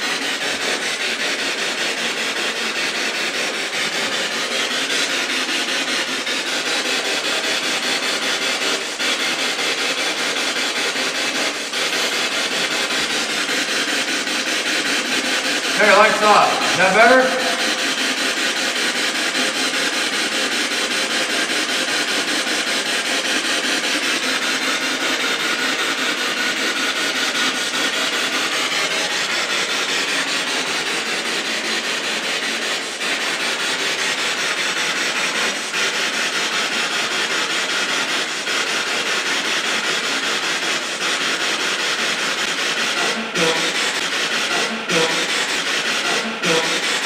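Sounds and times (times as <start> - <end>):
pulsing radio static hiss: 15.6 - 18.2, 43.0 - 47.0.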